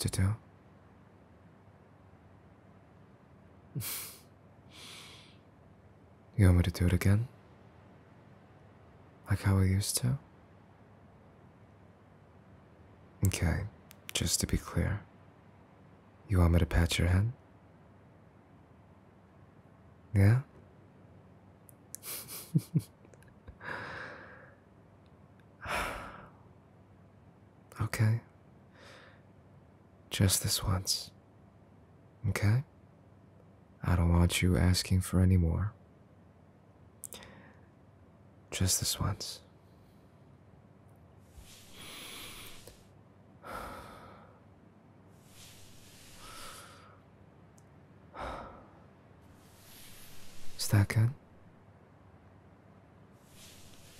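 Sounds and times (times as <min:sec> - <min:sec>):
man breathing: 0:03.8 - 0:05.5, 0:23.6 - 0:24.6, 0:28.7 - 0:29.3, 0:37.1 - 0:37.8, 0:41.2 - 0:44.5, 0:45.1 - 0:47.1, 0:48.1 - 0:50.7, 0:53.2 - 0:53.9
sigh-like exhale: 0:41.3 - 0:44.3, 0:45.2 - 0:47.0, 0:49.4 - 0:50.6, 0:53.2 - 0:53.9.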